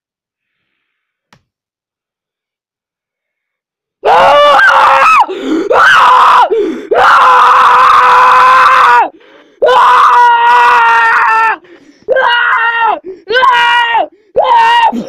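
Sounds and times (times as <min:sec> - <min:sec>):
child screaming: 0:04.0 - 0:15.0.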